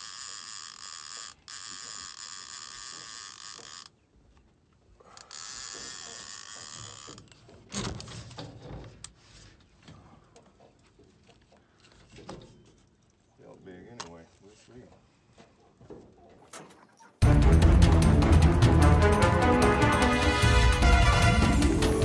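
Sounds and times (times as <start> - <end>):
fishing reel drag buzzing: 0.0 - 3.9, 5.1 - 7.2.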